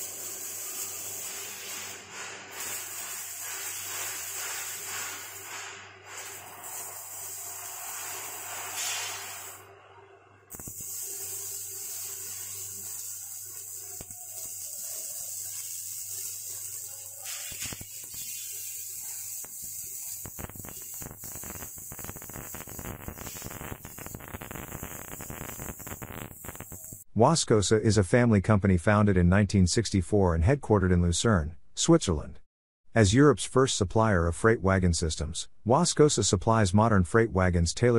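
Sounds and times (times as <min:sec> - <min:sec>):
arc welding hiss and crackle: 0:00.0 - 0:09.7, 0:10.5 - 0:27.1.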